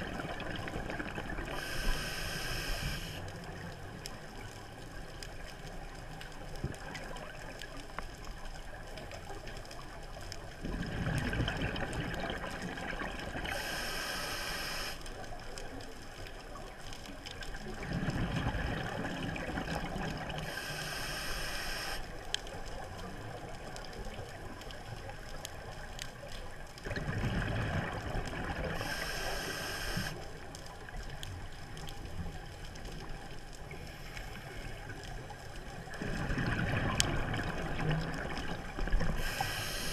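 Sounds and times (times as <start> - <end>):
exhaled bubbles underwater: 0.0 - 4.0, 10.6 - 14.2, 17.5 - 22.0, 26.8 - 30.4, 34.9 - 39.9
regulator hiss on inhale: 1.5 - 3.3, 13.4 - 15.2, 20.4 - 22.1, 28.7 - 30.4, 33.8 - 34.9, 39.1 - 39.9.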